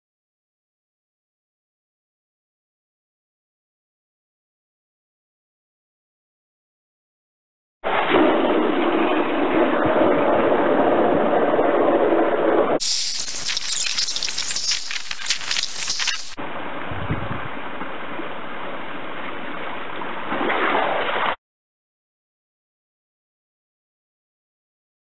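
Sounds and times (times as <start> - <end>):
water jet spraying and splashing: 12.8 - 16.4.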